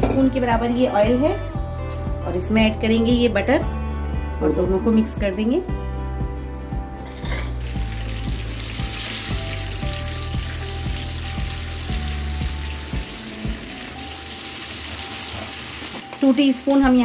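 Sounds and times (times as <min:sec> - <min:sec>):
background music with beat: 0:03.2 - 0:15.3
butter and oil sizzling: 0:07.6 - 0:17.0.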